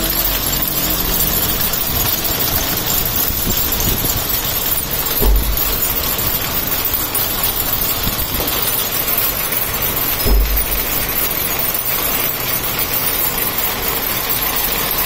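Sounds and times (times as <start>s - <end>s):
braiding machine running: 0.0s - 15.0s
low thumps: 0.1s - 8.8s, 10.1s - 11.5s.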